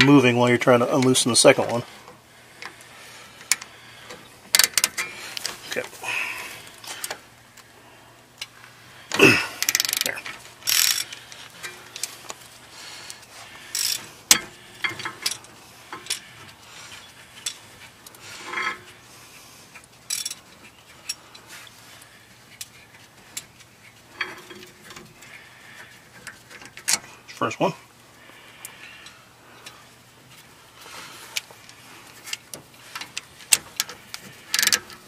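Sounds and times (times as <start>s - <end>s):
socket ratchet clicking: 9.6s - 11.1s, 34.6s - 34.8s
metal clicks and knocks: 13.8s - 16.2s.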